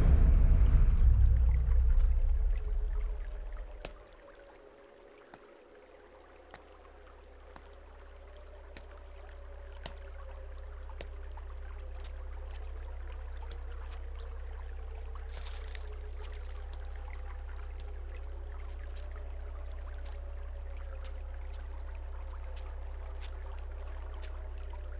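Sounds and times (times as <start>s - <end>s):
deep horror score drone: 0.0s - 4.0s.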